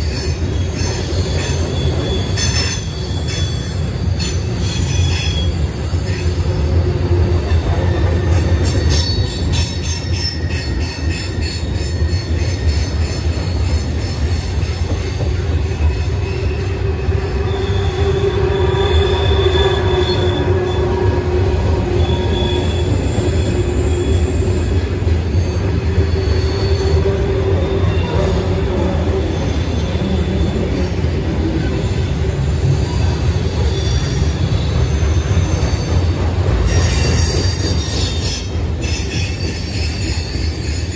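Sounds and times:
steel wheels rumbling on rail: 0.0 - 40.9
wheels squealing: 21.7 - 30.6.

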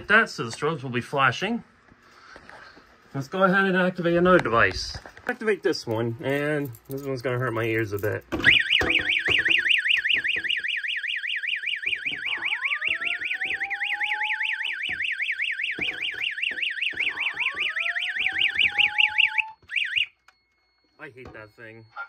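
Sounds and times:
warbling electronic alarm tone: 8.4 - 22.0
rising whoop alarm tone: 10.6 - 20.1.

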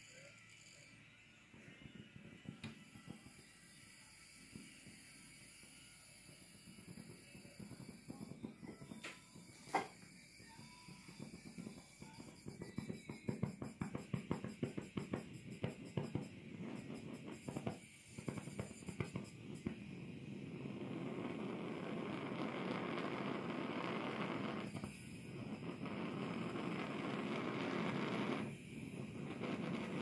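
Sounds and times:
burner rushing hiss: 14.5 - 30.0.

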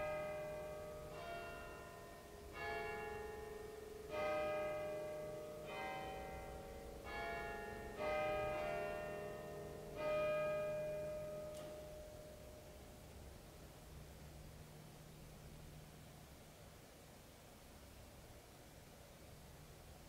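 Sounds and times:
bells ringing: 0.0 - 12.5.

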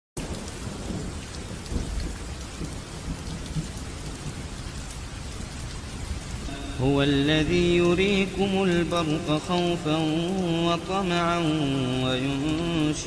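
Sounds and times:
raindrop taps: 0.2 - 6.4
rain hissing: 0.2 - 13.0.

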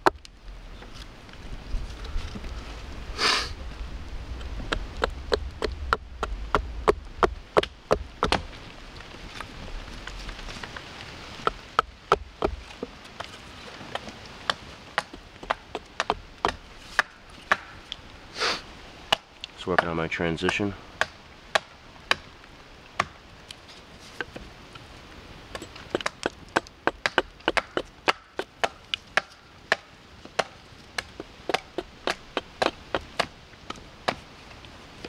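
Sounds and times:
axe chopping wood: 4.7 - 8.5, 11.4 - 12.8, 13.9 - 17.8, 19.1 - 19.9, 20.5 - 22.3, 23.0 - 23.2, 25.6 - 34.2.

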